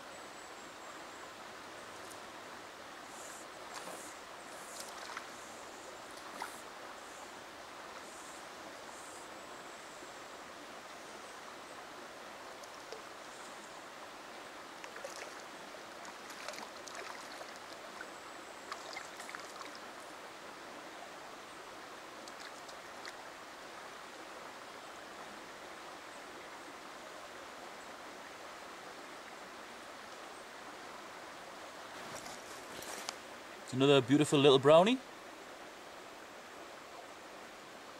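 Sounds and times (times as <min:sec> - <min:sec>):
river water running: 0:00.0 - 0:37.9
fish splashing: 0:16.1 - 0:17.7.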